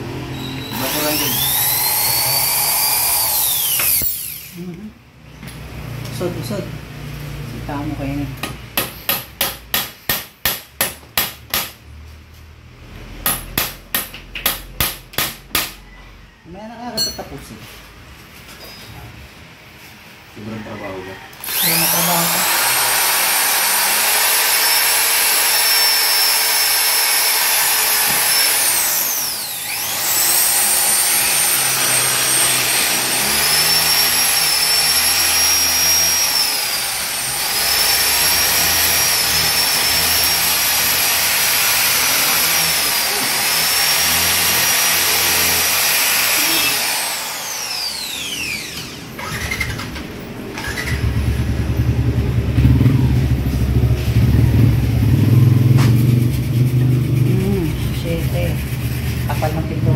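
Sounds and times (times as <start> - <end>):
power tool high whine: 0.1 - 4.7, 21.4 - 49.8
deep engine sound: 50.3 - 59.9.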